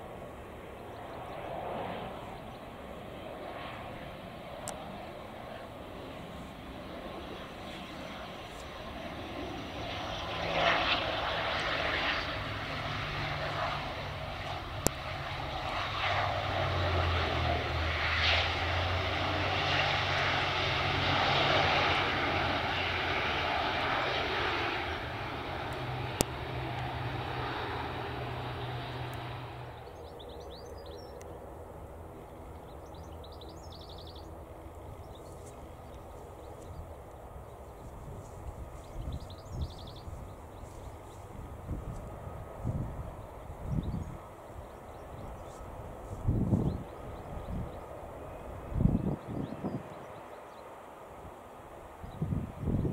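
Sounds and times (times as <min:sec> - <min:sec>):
outdoor background: 0:00.0 - 0:52.9
turboprop engines droning: 0:00.0 - 0:52.9
engine noise rushing: 0:11.0 - 0:30.1.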